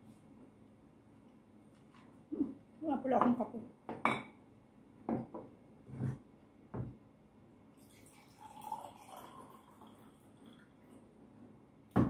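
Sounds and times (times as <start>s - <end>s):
glassware knocking on table: 3.2s - 4.3s, 5.1s - 5.5s
water pouring into glass: 7.8s - 11.0s.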